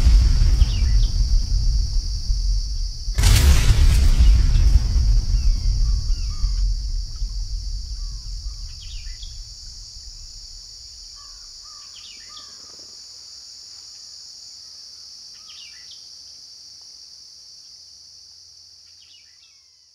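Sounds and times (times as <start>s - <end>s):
low rumble: 0.0s - 11.5s
high insect drone: 0.0s - 19.9s.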